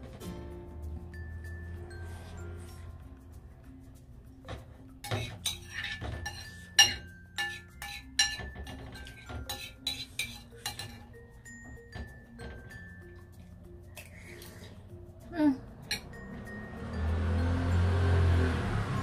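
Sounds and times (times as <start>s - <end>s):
soft background music: 0.0s - 19.0s
metal spoon clinking on ceramic bowl: 5.0s - 13.2s.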